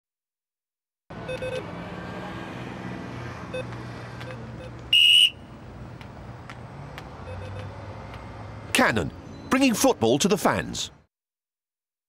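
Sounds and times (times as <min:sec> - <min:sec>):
low street hum: 0:01.1 - 0:11.0
keypad beeps: 0:01.3 - 0:01.6, 0:07.2 - 0:07.7
referee's whistle blast: 0:04.9 - 0:05.4.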